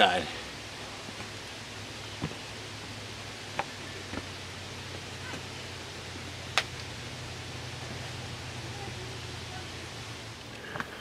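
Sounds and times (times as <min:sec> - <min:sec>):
steady low hum: 0:00.0 - 0:11.0
footsteps on rock: 0:02.1 - 0:02.5, 0:03.5 - 0:04.4.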